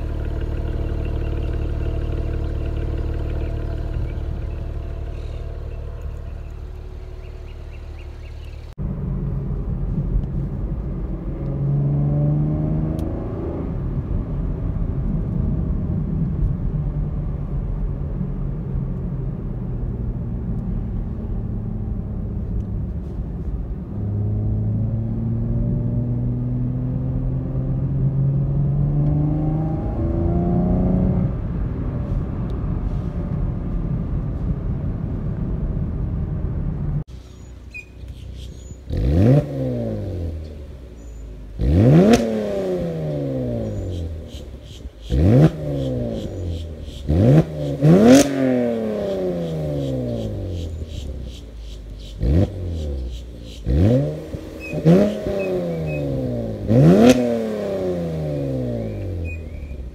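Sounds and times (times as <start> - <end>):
car engine idling: 0.0 - 11.5, 42.4 - 57.0
car engine accelerating: 0.0 - 59.9.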